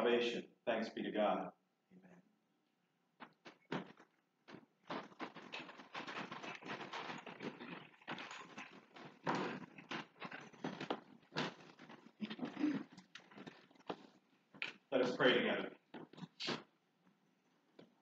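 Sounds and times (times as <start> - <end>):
small cups clicking and rustling: 3.2 - 14.9.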